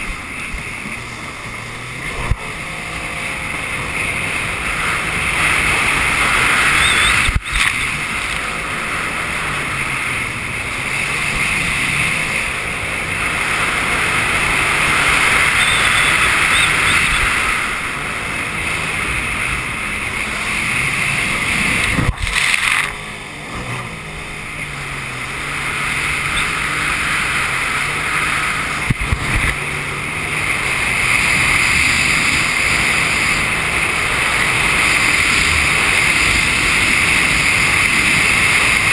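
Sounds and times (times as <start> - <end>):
jet ski engine revving: 0.0 - 38.9
wind: 0.0 - 38.9.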